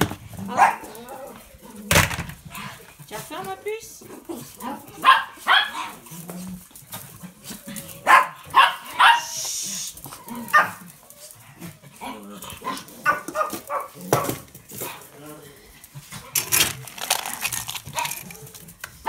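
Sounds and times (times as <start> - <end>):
small dogs barking: 0.4 - 1.8, 4.2 - 6.2, 7.3 - 9.5, 10.1 - 11.3, 11.9 - 15.1.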